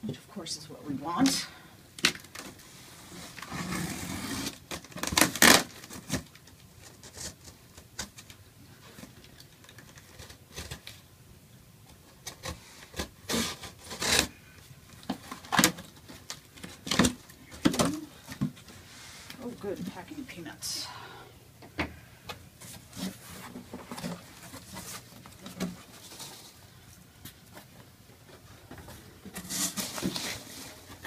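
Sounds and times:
box cutter slitting packing tape: 3.4 - 6.3, 12.2 - 14.4, 29.3 - 30.5.

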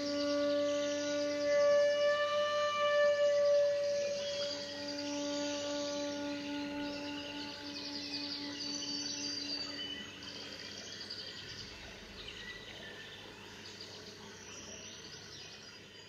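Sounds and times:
flute holding a low note: 0.0 - 12.0.

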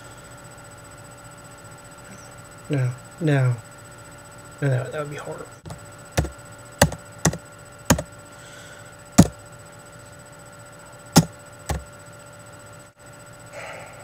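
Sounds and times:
electrical hum: 0.0 - 14.0
knocks on a desk: 6.2 - 8.1, 11.2 - 11.8.

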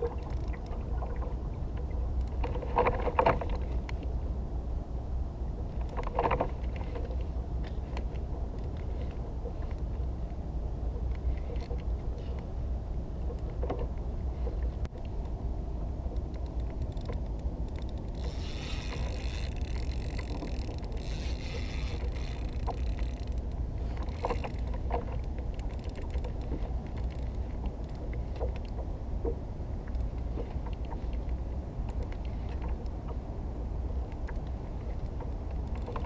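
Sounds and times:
steady low rumble: 0.0 - 36.0
fishing reel drag buzzing: 16.3 - 24.7.

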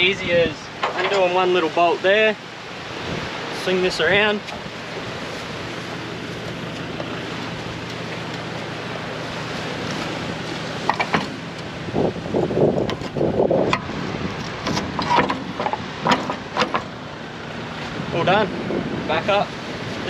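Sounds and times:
surf: 0.0 - 20.0
wind: 0.0 - 20.0
metal clanks and rattles: 0.8 - 1.4, 10.8 - 11.4, 12.8 - 17.0.

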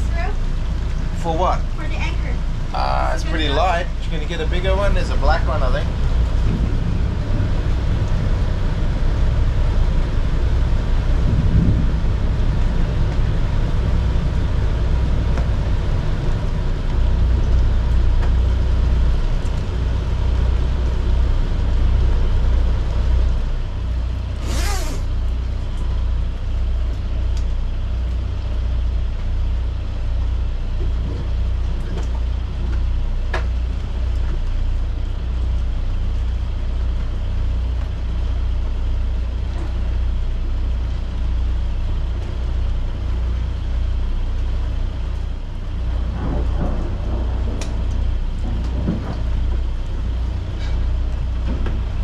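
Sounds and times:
boat diesel engine humming: 0.0 - 52.0
short hiss: 24.4 - 25.2.

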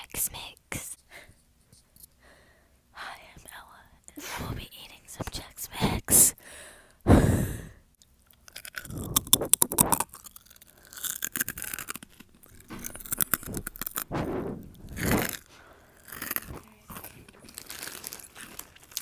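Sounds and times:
snack mix crunched and chewed: 8.0 - 14.1, 14.8 - 19.0.

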